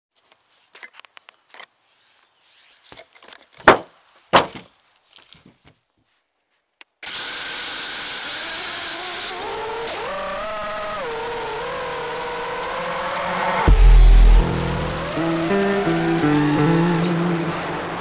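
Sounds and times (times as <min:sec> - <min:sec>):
quadcopter motors whirring: 0:07.0 - 0:16.8.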